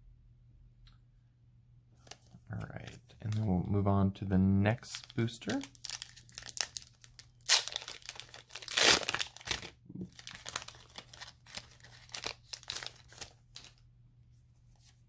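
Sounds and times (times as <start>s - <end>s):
foil wrapper tearing and crinkling: 5.0s - 13.8s.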